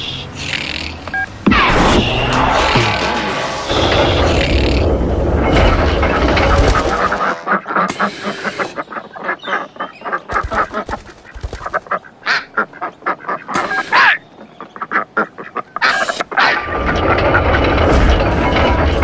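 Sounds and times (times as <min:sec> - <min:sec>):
squawky quack-like calls: 0:06.4 - 0:17.0.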